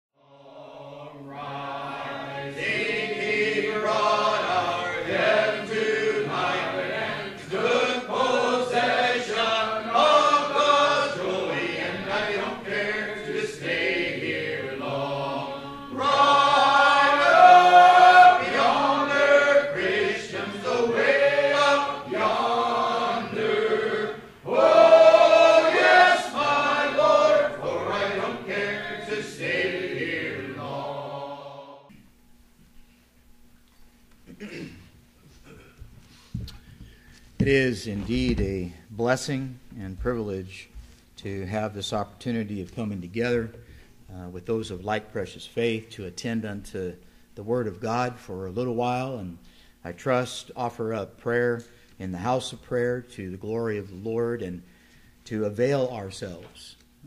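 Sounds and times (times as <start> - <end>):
congregation singing a hymn: 0.2 - 32.0.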